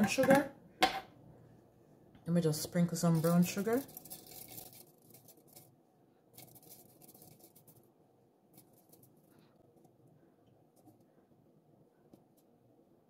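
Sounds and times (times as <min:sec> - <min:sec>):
sugar sprinkled into a metal pan: 0:02.6 - 0:05.7, 0:06.3 - 0:07.8.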